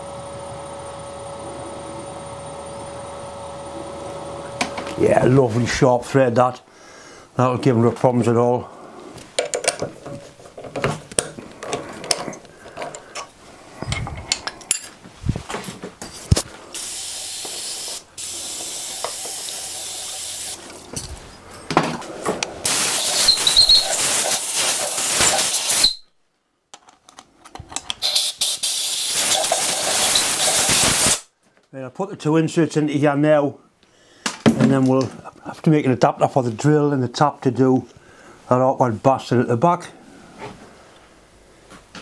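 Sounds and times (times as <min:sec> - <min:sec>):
clicks of handled metal parts: 0:11.1 - 0:15.0
aerosol spray can hissing: 0:16.8 - 0:20.6, 0:22.6 - 0:26.0, 0:28.0 - 0:31.3.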